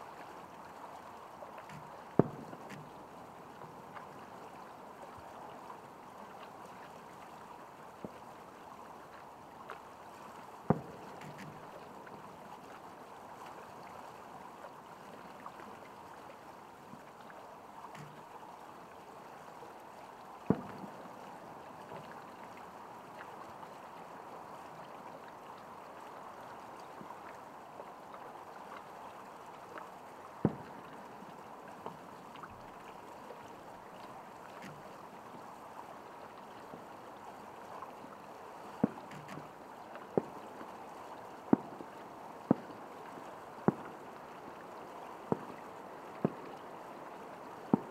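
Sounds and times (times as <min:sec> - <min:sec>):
steady background hiss: 0:00.0 - 0:47.9
faint fireworks pops: 0:01.6 - 0:04.1, 0:10.6 - 0:12.2, 0:20.5 - 0:21.2, 0:30.4 - 0:31.1, 0:34.6 - 0:35.0, 0:38.8 - 0:40.4, 0:41.4 - 0:42.8, 0:43.6 - 0:44.1, 0:45.3 - 0:45.6, 0:46.2 - 0:46.6, 0:47.6 - 0:47.9.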